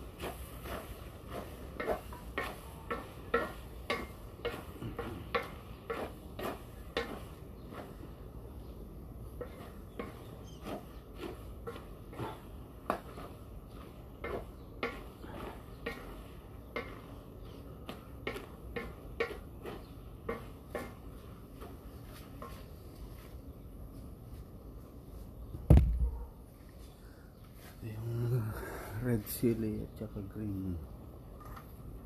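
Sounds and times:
spatula scraping in wok: 0.0 - 22.8.

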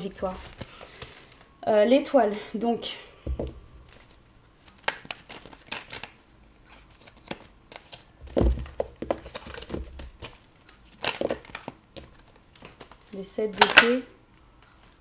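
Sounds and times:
dull knock: 3.3 - 3.7
cards being shuffled: 3.9 - 14.0.

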